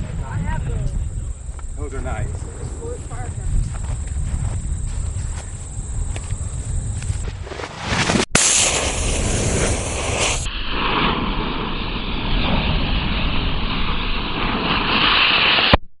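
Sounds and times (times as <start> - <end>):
wind rumble on microphone: 0.0 - 7.6
sparks spitting: 7.8 - 10.9, 14.4 - 15.8
firecracker detonating: 7.8 - 15.8
fuse hissing: 8.4 - 10.7.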